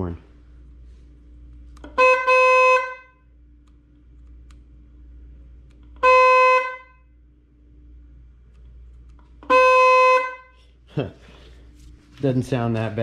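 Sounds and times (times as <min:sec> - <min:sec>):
electric horn honking: 0:01.9 - 0:03.3, 0:05.9 - 0:07.1, 0:09.4 - 0:10.8.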